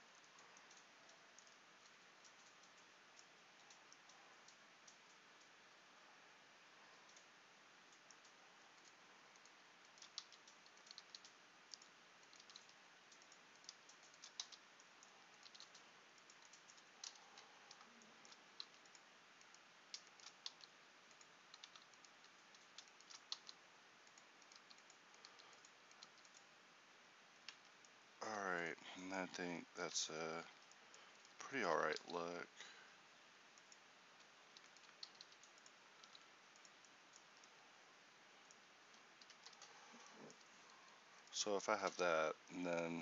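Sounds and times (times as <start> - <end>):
keyboard and mouse clicking: 0.2 - 5.5, 7.9 - 26.4, 34.5 - 37.5, 39.2 - 40.5.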